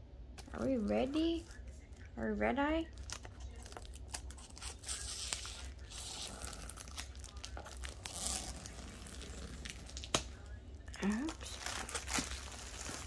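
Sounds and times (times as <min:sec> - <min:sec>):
plastic packaging crinkling: 0:02.8 - 0:13.0.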